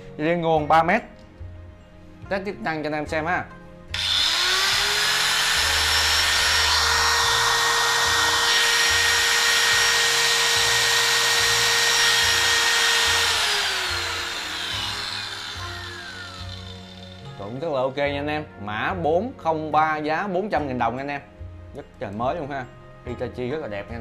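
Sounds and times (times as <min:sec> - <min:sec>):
angle grinder whining: 0:03.9 - 0:17.4
grinder winding down: 0:03.9 - 0:17.4.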